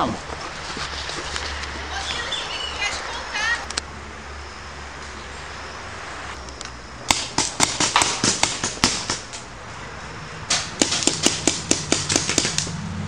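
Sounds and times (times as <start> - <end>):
paintball markers firing: 7.1 - 9.4, 10.5 - 12.7.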